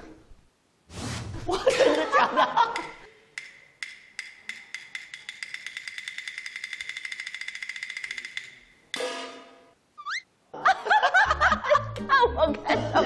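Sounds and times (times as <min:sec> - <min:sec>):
fast ticking sound effect: 0:03.8 - 0:08.7.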